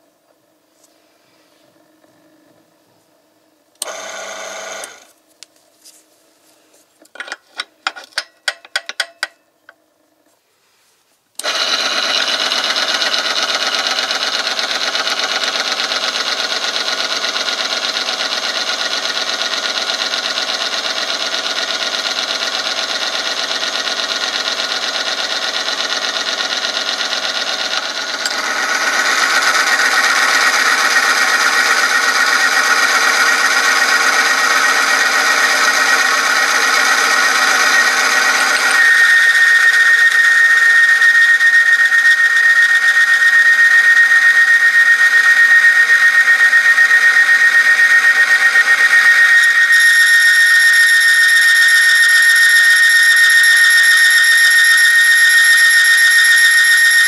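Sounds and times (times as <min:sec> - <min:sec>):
electric motor running: 0:03.8 - 0:05.1, 0:11.4 - 0:57.0
spinning ring rubbing: 0:27.6 - 0:57.0.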